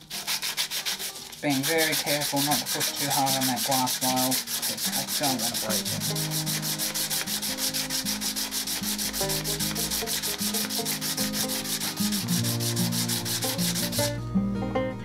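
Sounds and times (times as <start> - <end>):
sandpaper rubbing on metal: 0.0 - 14.2.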